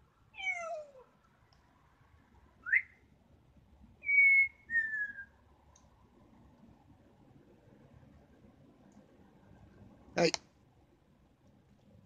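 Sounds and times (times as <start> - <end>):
parrot whistling: 2.6 - 3.0, 4.0 - 5.3.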